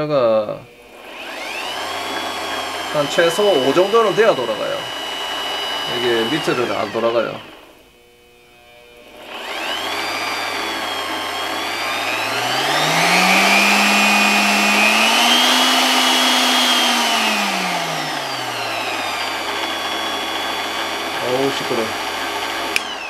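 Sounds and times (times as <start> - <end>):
electric drill motor whining: 0.7 - 23.0.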